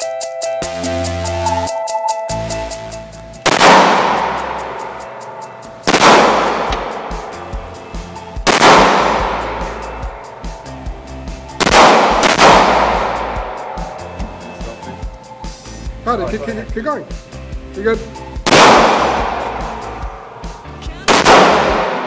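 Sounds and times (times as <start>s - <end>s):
background music: 0.0s - 22.0s
pistol shots echoing: 3.4s - 10.8s, 11.6s - 14.1s, 18.4s - 20.4s, 21.1s - 22.0s.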